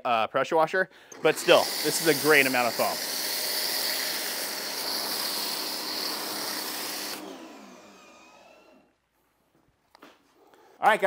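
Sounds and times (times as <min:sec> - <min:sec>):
pressure washer spraying hiss: 0:01.2 - 0:07.2
motor winding down whine: 0:01.2 - 0:08.9.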